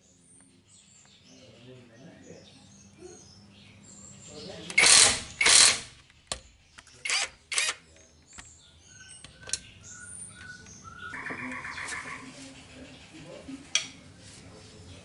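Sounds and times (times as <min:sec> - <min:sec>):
socket wrench ratcheting: 0:04.8 - 0:05.8.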